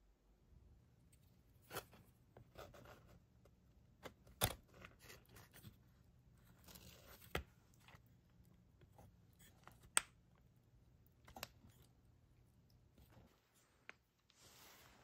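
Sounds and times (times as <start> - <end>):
soft rustling and scraping: 12.8 - 15.0.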